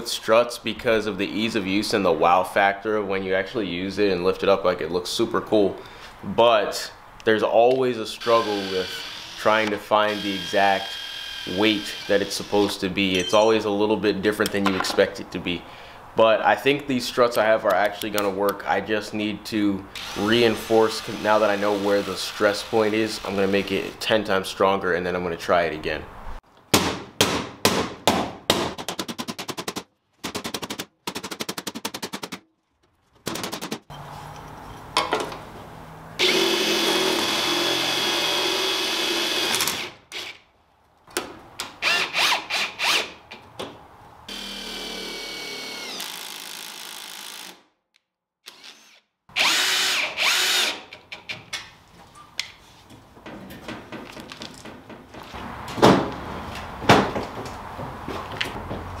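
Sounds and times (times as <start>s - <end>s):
power tool whine: 8.2s - 9.4s, 10.1s - 12.1s, 36.2s - 40.3s, 44.3s - 47.5s
impact driver driving screws: 48.4s - 51.1s.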